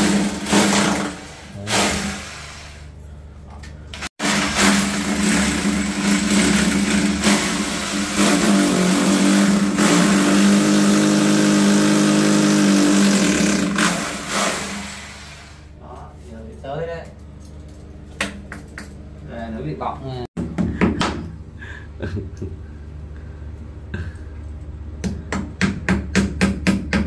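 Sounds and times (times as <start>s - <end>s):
electric drill running: 4.2s - 15.5s.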